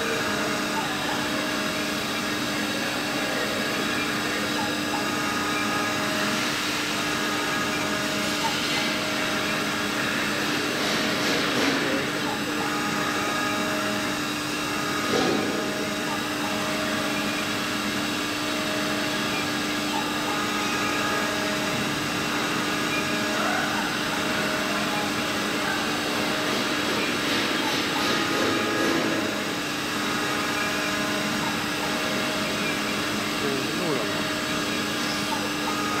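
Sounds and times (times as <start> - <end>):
router spindle whine: 0.0 - 36.0.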